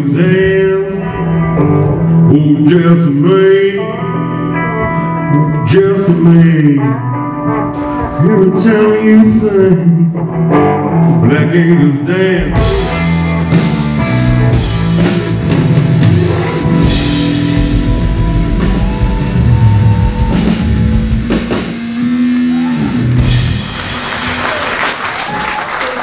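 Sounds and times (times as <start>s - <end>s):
blues-rock band playing: 0.0s - 25.3s
audience applause: 22.5s - 26.0s.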